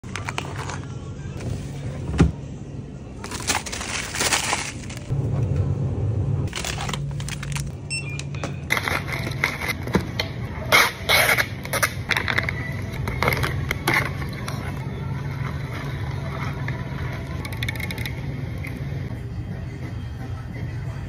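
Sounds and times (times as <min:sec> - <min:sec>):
steady low hum: 0:00.9 - 0:21.0
plastic packaging rustling: 0:03.2 - 0:05.1, 0:06.5 - 0:07.7.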